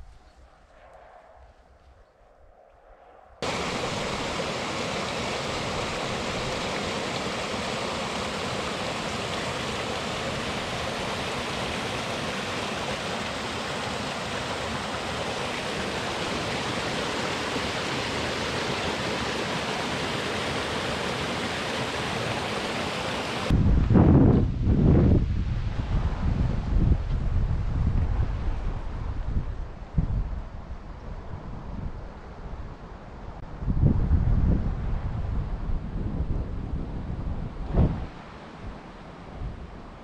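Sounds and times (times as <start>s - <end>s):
stream rushing over boulders: 3.4s - 23.6s.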